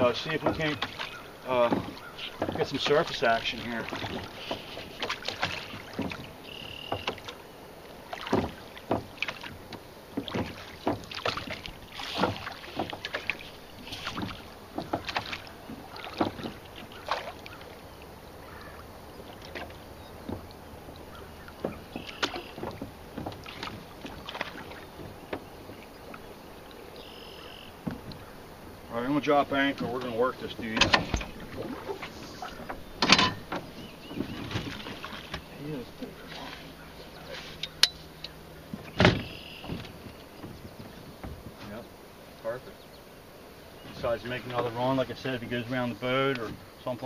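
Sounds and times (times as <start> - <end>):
oar knocks: 0.0 - 7.4, 8.1 - 17.7, 18.4 - 26.2, 27.7 - 28.3, 29.5 - 35.5, 38.7 - 41.8
oars splashing in water: 0.0 - 47.0.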